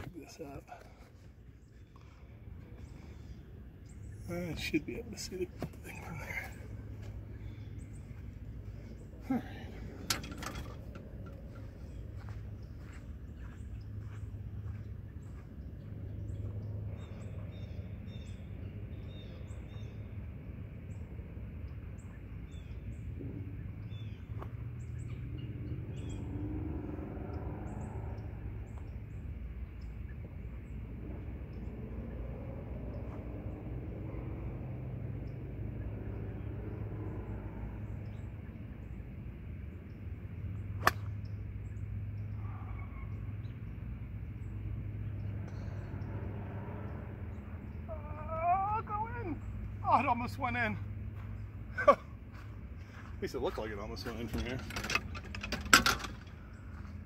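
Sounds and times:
birds chirping: 0.0s - 57.0s
low outdoor rumble: 0.0s - 57.0s
golf club striking ball: 40.8s - 41.2s.

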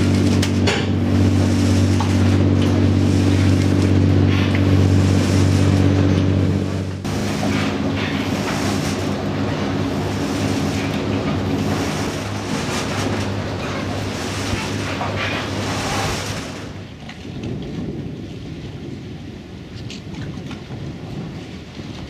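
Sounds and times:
boat engine running: 0.0s - 18.4s
wind on microphone: 0.0s - 22.0s.

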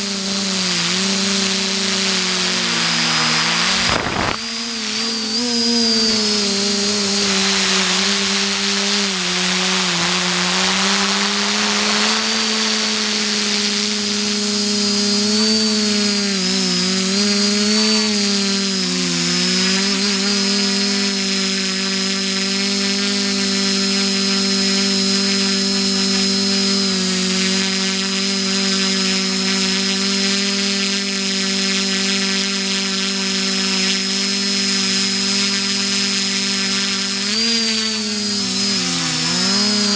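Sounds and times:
faint high whine: 0.0s - 29.9s, 32.0s - 39.9s
drone propellers droning: 0.0s - 39.9s.

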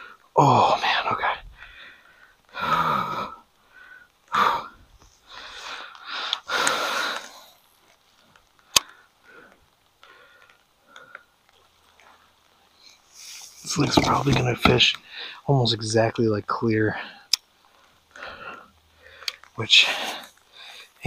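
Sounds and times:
man breathing heavily: 1.4s - 7.7s, 8.6s - 11.4s, 15.0s - 15.5s, 16.9s - 21.0s.

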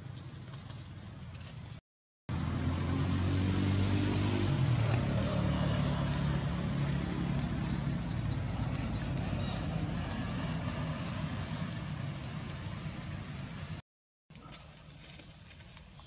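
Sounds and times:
vehicle engine running: 2.3s - 13.8s.

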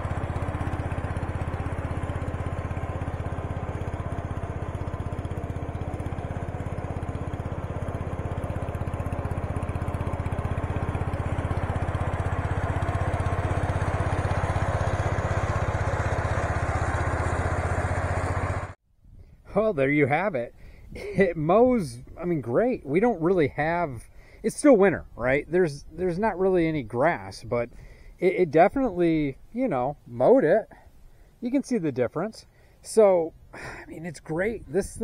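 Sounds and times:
garden tractor engine running: 0.0s - 18.8s, 19.4s - 35.0s
mower deck cutting grass: 0.0s - 18.8s.

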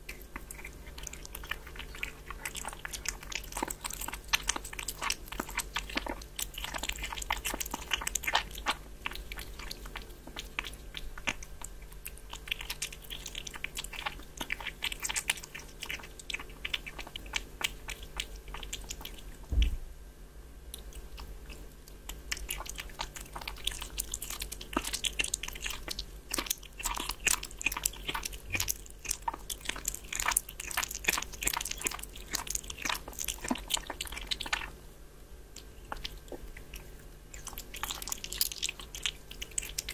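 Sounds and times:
kitten chewing and licking: 0.0s - 19.8s, 20.6s - 39.9s
low thump: 19.5s - 19.9s.

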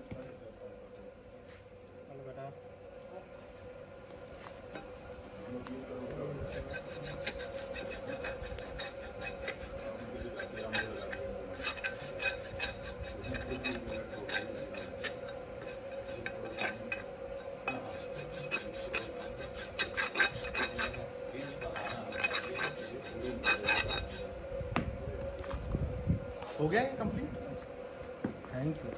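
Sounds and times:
hoof rasp filing: 5.7s - 24.4s.

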